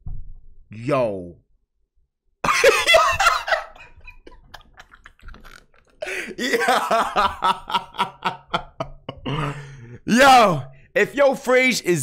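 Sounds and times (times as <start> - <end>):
man laughing and coughing: 2.4 - 5.0, 6.0 - 10.0.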